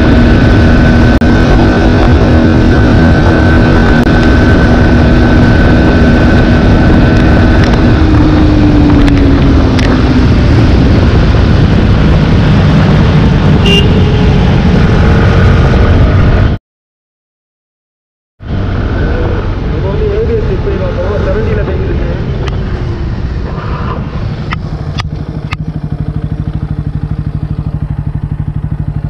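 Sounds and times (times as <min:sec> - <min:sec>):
motorcycle engine running hard: 0:00.0 - 0:16.6, 0:18.6 - 0:29.0
wind noise on microphone: 0:00.0 - 0:16.6.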